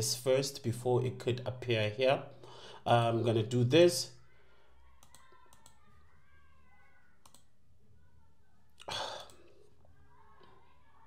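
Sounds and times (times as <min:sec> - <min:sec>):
faint computer clicks: 0:05.0 - 0:06.1, 0:07.2 - 0:07.6.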